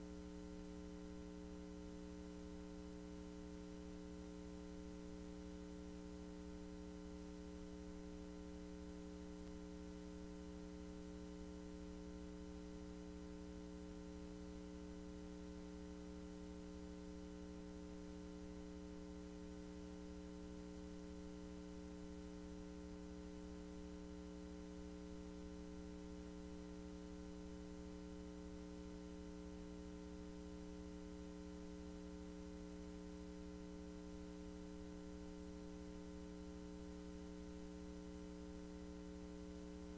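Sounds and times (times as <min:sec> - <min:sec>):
electrical hum: 0:00.0 - 0:20.0.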